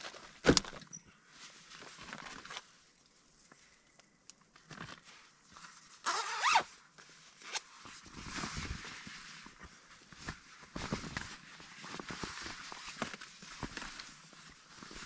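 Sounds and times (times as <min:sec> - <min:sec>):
clothing rustling: 0:04.6 - 0:15.0
zipper pulled: 0:06.0 - 0:06.7.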